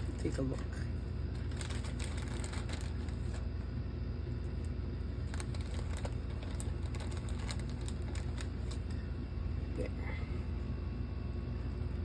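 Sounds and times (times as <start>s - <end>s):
steady low hum: 0.0s - 12.0s
plastic bag crinkling: 1.3s - 3.5s, 5.1s - 9.0s.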